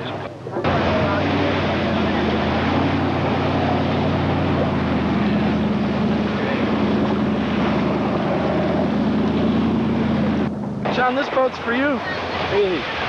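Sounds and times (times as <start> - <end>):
motorboat engine drone: 0.0 - 13.0
wind and water spray hiss: 11.0 - 13.0.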